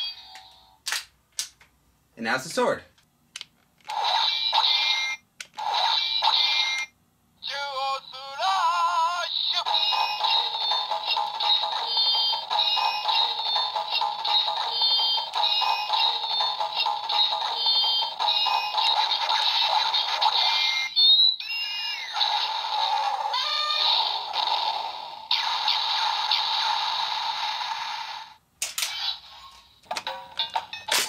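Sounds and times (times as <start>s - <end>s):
toy blaster electronic music: 9.4s - 28.2s.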